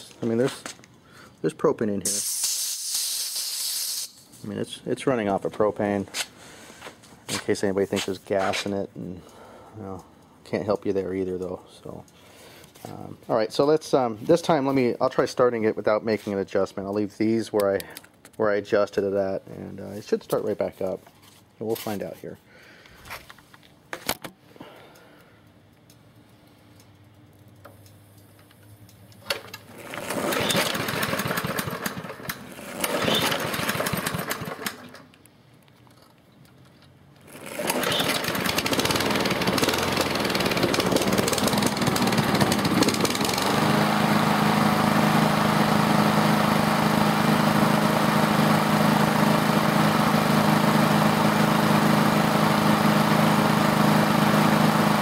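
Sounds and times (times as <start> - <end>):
lawn mower engine starting and running: 29.2 - 35.2, 37.2 - 55.0.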